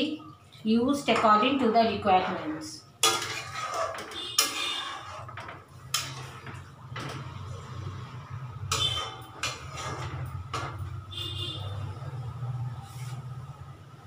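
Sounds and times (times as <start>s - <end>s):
metal spoon stirring curry: 3.0s - 12.1s.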